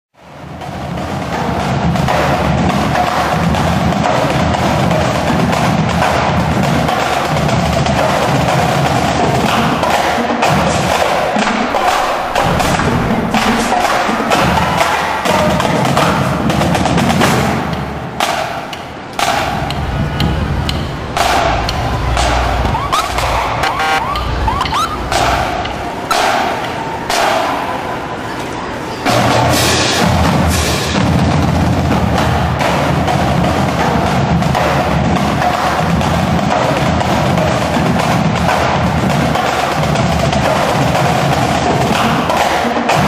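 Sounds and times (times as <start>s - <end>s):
drum-led percussion music: 0.5s - 27.8s.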